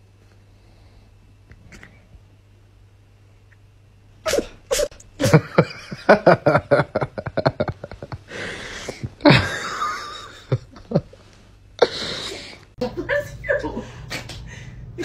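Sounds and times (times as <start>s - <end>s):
cat sneezing: 4.2s - 5.0s.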